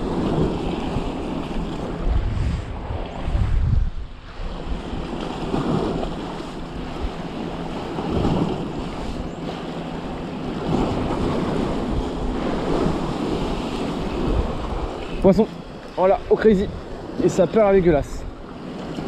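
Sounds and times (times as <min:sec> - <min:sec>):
wind rumbling on microphone: 0:00.0 - 0:19.0
waves breaking against rocks: 0:04.5 - 0:19.0.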